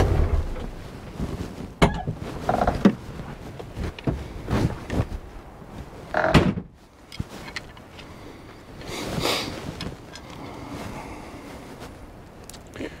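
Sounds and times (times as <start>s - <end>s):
clunks and knocks: 0.0s - 0.8s, 1.8s - 3.0s, 6.1s - 6.8s
rustling: 0.0s - 13.0s.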